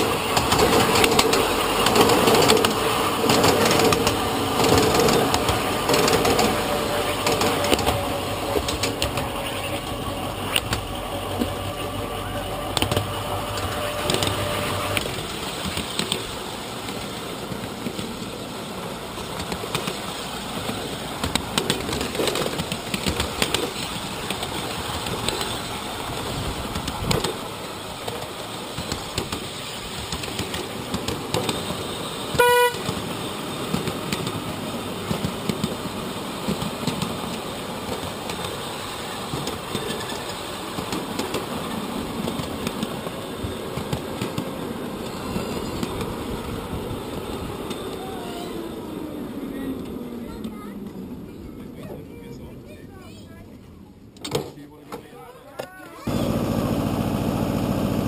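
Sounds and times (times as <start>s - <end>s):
train wheels rumbling over rails: 0.0s - 55.2s
train horn toot: 11.3s - 15.1s, 31.6s - 33.0s.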